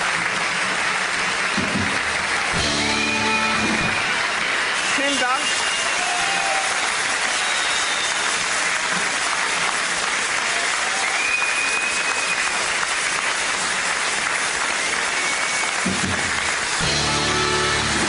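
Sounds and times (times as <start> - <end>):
audience applauding: 0.0 - 18.0
crowd whistles and calls: 1.4 - 9.7, 10.4 - 13.3, 13.9 - 18.0
band playing: 1.5 - 5.8, 15.9 - 18.0.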